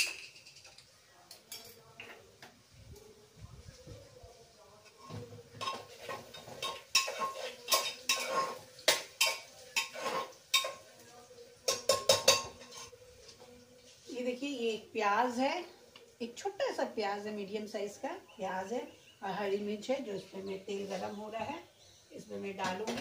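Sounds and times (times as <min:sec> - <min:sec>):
metal pots clanking: 0:00.0 - 0:00.8, 0:04.9 - 0:10.9, 0:11.6 - 0:13.0, 0:22.5 - 0:23.0.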